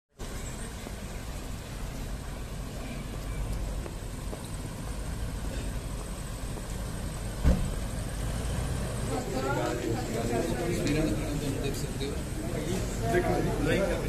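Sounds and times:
car engine low rumble: 0.2 - 14.0
short thump: 7.4 - 7.8.

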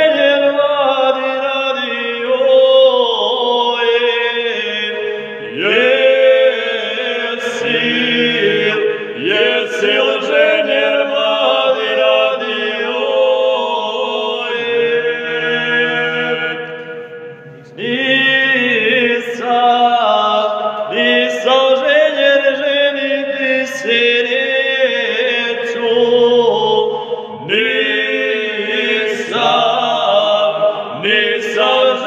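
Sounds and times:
men singing unaccompanied: 0.0 - 16.7, 17.7 - 32.0.

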